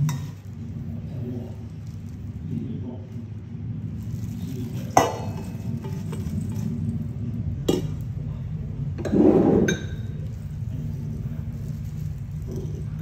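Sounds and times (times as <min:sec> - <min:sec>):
steel bowls clinking: 0:00.0 - 0:00.6, 0:04.1 - 0:07.0, 0:09.0 - 0:13.0
bowl scraping: 0:00.0 - 0:03.2, 0:03.8 - 0:13.0
steady low hum: 0:00.0 - 0:13.0.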